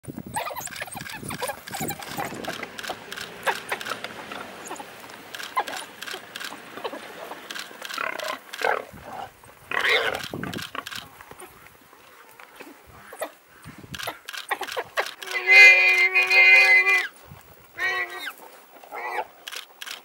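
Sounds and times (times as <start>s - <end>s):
warthog squealing: 0.3s - 10.6s, 15.1s - 17.1s.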